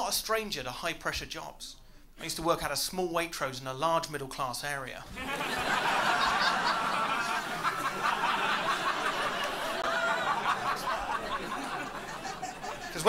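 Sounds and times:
audience laughing: 5.1s - 13.0s.

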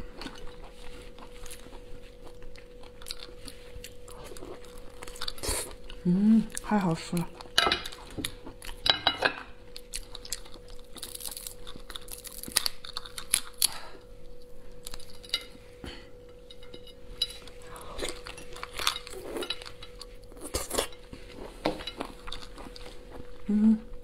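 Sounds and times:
faint steady hum: 0.0s - 24.0s
lobster shell cracking: 9.8s - 13.8s.

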